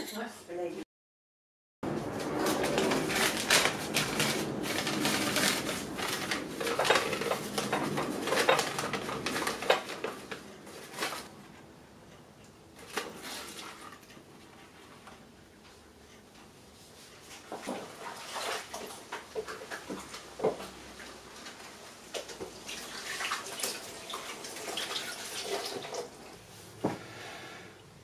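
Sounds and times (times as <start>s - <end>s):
paper filter crinkling: 2.4s - 11.3s.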